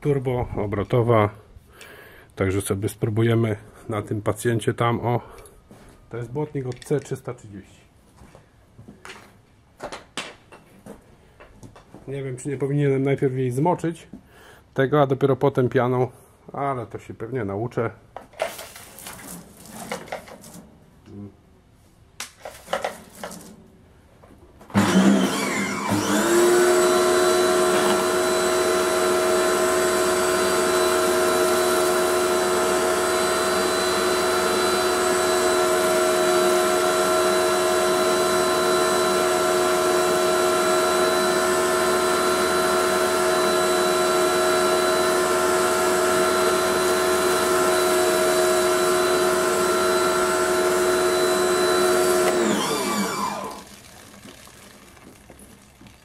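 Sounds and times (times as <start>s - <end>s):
pressure washer motor whining: 24.7s - 56.0s.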